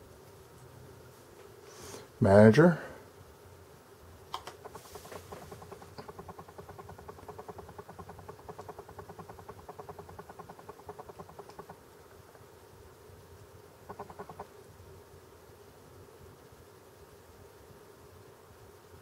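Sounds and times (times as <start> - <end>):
faint steady hum: 0.0 - 19.0
hard drive seeking ticks: 4.3 - 11.8, 13.8 - 14.6.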